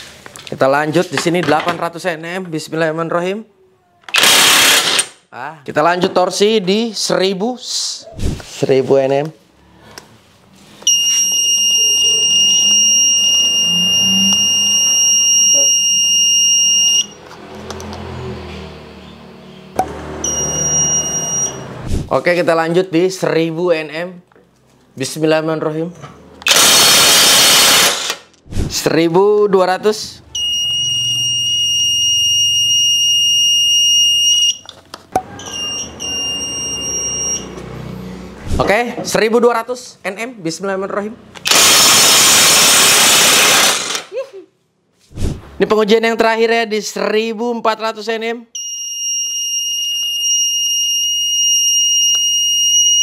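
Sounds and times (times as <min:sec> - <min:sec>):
high-pitched electronic beep: 0:10.9 - 0:17.2, 0:19.8 - 0:21.8, 0:30.3 - 0:34.7, 0:35.3 - 0:37.6, 0:48.6 - 0:53.0.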